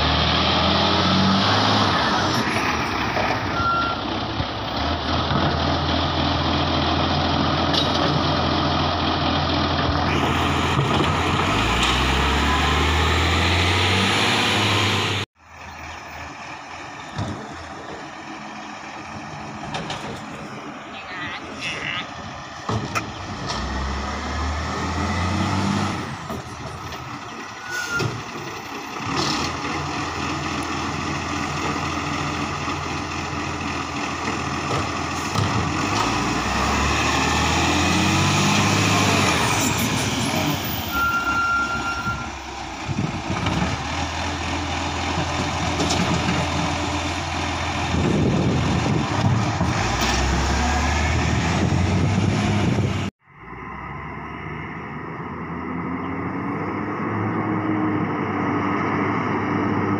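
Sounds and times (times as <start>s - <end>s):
garbage truck diesel engine revving: 0.0s - 19.7s, 22.3s - 59.9s
short beep: 3.5s - 4.0s, 40.9s - 42.4s.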